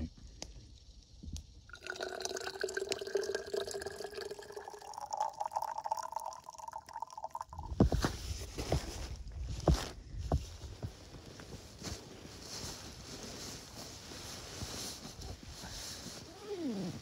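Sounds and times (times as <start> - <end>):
water pouring into a bottle: 1.7 - 7.9.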